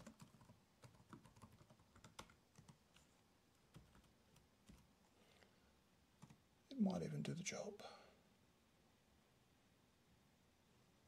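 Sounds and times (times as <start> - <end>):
faint laptop keyboard typing: 0.0 - 5.5, 6.1 - 6.5.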